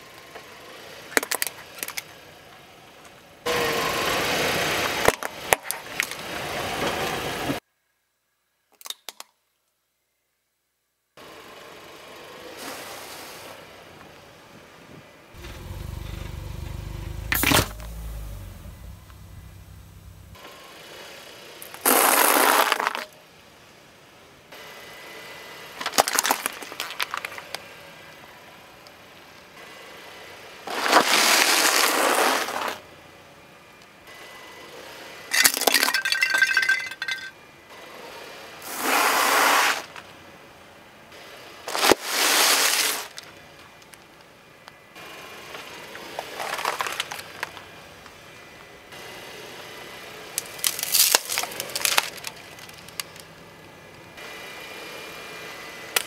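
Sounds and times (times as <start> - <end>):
car tyre crushing objects: 15.4 - 20.4, 21.8 - 23.2, 25.8 - 27.5, 46.2 - 47.6, 50.4 - 53.3
tyre crushing brittle objects: 25.8 - 27.4, 46.2 - 47.6, 50.4 - 53.3
cardboard box and cereal crunching: 30.7 - 32.8, 41.7 - 43.1, 46.2 - 47.6, 50.4 - 53.2.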